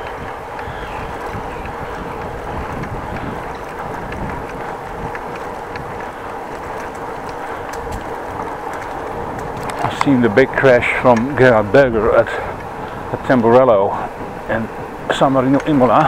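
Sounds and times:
tyres rolling on pavement: 0.0s - 16.0s
wind noise on microphone: 0.0s - 16.0s
light clicks or rattles: 15.4s - 16.0s.

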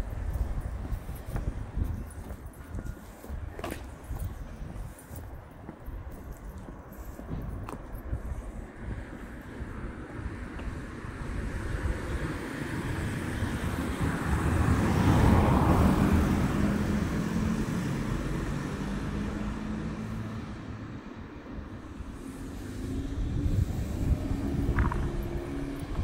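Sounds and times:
car passing: 8.8s - 26.0s.

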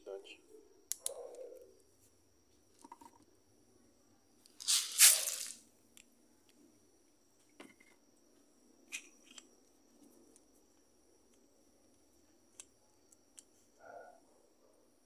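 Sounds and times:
splash on water surface: 4.7s - 5.6s.

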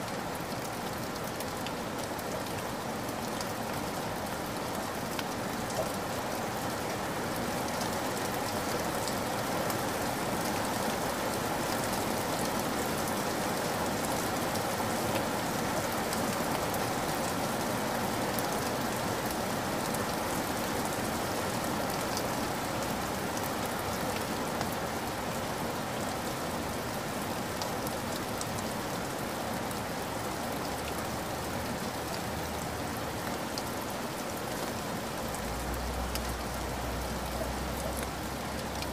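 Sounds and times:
stream flowing over gravel: 0.0s - 38.9s.

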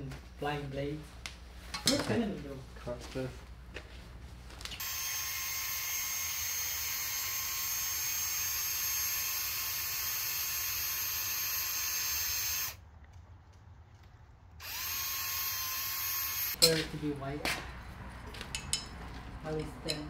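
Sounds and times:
power tool whining: 4.8s - 12.8s, 14.6s - 16.6s.

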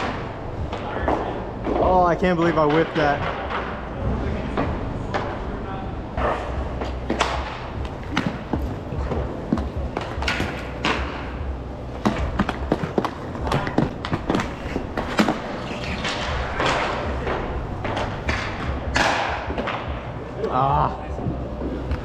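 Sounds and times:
sticks and puck clacking: 0.0s - 5.6s, 6.2s - 20.6s
skate wheels rolling: 0.0s - 22.0s.

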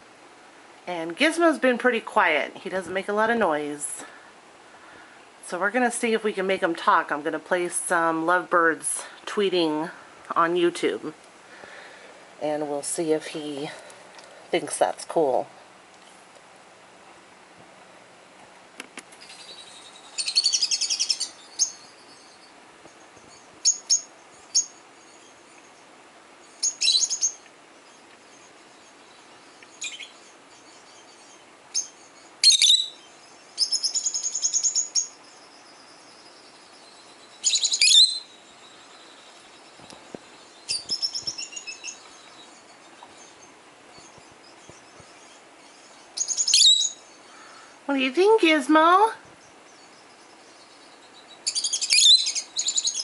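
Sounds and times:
bird chirps through speakers: 32.4s - 33.0s, 37.4s - 38.3s, 46.2s - 47.0s, 51.5s - 53.0s.

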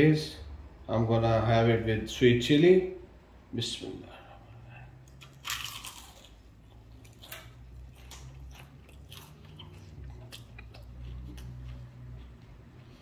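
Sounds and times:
crunchy chewing: 4.4s - 13.0s.

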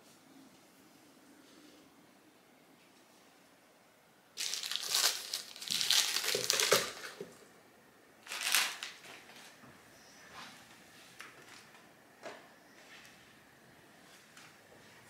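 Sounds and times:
food packaging crinkling: 4.4s - 7.4s, 8.2s - 9.6s.

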